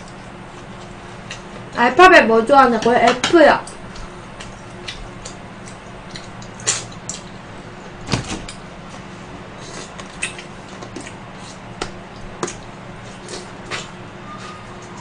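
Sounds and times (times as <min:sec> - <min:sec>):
steady low hum: 0:00.0 - 0:15.0
mouth smacks and crunchy clicks: 0:04.0 - 0:07.4, 0:09.7 - 0:13.9.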